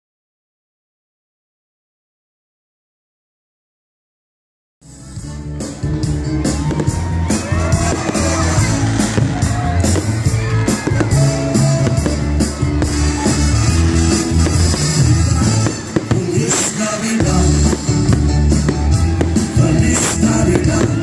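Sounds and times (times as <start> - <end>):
live band playing: 4.8 - 21.0.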